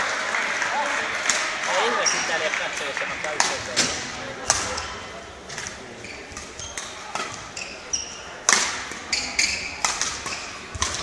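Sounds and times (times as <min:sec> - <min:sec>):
shoes squeaking on court: 0:01.9 - 0:02.4, 0:05.6 - 0:11.0
rackets hitting shuttlecock: 0:02.8 - 0:05.0, 0:05.6 - 0:07.6, 0:08.4 - 0:11.0.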